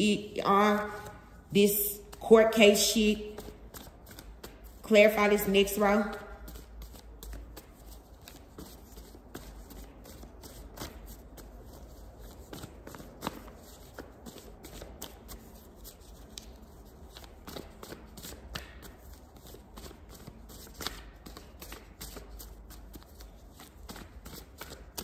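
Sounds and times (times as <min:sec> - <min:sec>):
cards being shuffled: 0:06.4 - 0:25.0.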